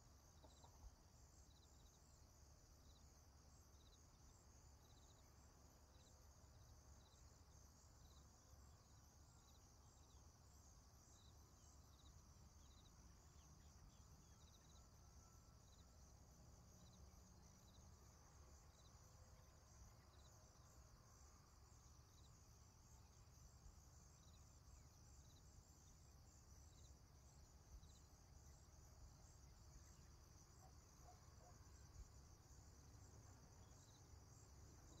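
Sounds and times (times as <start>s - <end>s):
short insect chirp: 0.0s - 35.0s
insect buzzing chorus: 0.3s - 35.0s.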